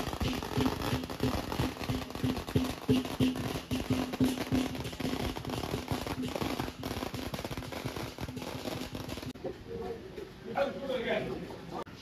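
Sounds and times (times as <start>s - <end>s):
large drum beating: 0.0s - 8.4s.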